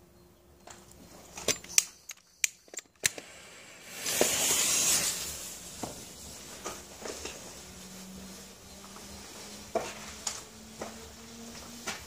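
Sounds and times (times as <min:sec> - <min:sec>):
sharp clicks: 0:00.8 - 0:03.3
firework fuse hissing: 0:03.0 - 0:10.5.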